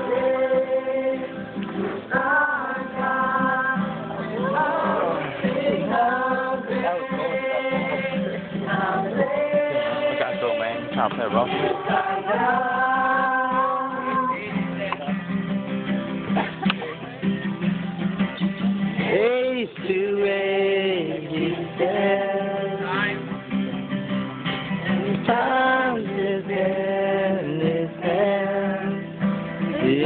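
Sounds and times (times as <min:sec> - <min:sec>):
acoustic guitar chords: 0:00.0 - 0:30.0
person singing: 0:02.1 - 0:14.8, 0:19.0 - 0:23.2, 0:24.9 - 0:30.0.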